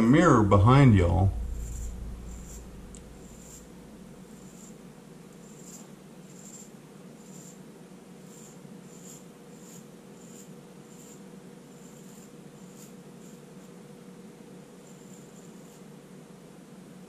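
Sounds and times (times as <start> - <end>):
steady low hum: 0.0 - 9.0
straight razor scraping whiskers: 1.6 - 4.8, 5.4 - 7.6, 8.2 - 11.2.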